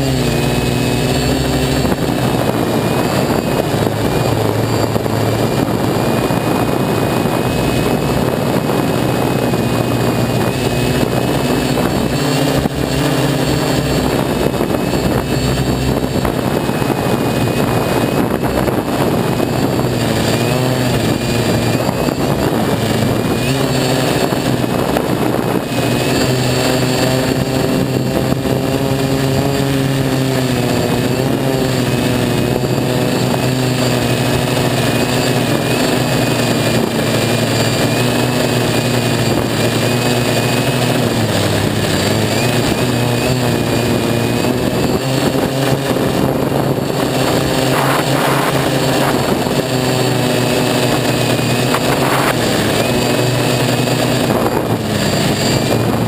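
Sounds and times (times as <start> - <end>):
quadcopter motors buzzing: 0.0 - 56.0.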